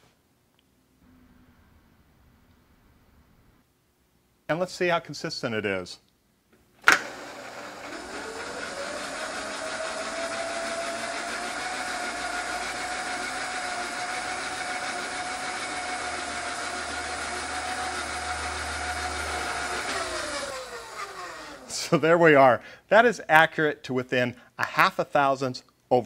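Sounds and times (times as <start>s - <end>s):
power feed motor whine: 6.9s - 21.7s.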